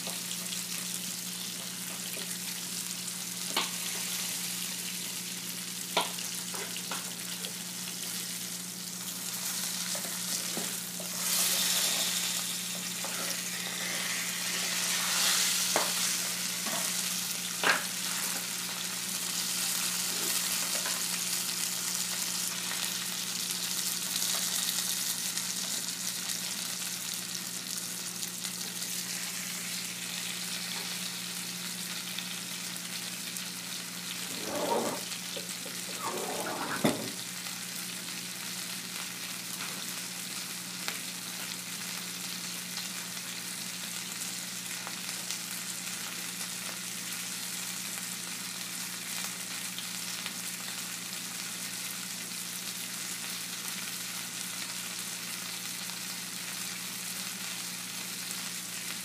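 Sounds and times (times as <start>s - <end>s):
food sizzling in a pan: 0.0s - 59.0s
utensils clinking against pans: 34.3s - 37.2s.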